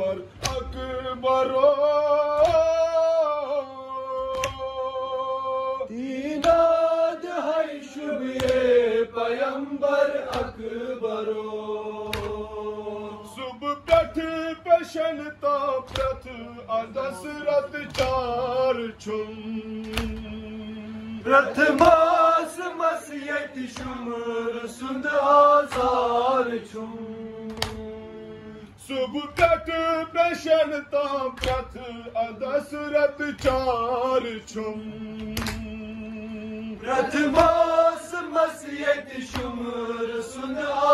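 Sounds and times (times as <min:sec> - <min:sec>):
men chanting a lament: 0:00.0 - 0:40.9
hand slaps on chest: 0:00.4 - 0:00.8, 0:02.4 - 0:02.7, 0:04.3 - 0:04.6, 0:06.4 - 0:06.7, 0:08.4 - 0:08.7, 0:12.1 - 0:12.4, 0:15.9 - 0:16.2, 0:17.9 - 0:18.2, 0:19.8 - 0:20.3, 0:27.5 - 0:27.9, 0:31.4 - 0:31.7, 0:33.4 - 0:33.7, 0:35.2 - 0:35.8, 0:39.3 - 0:39.6.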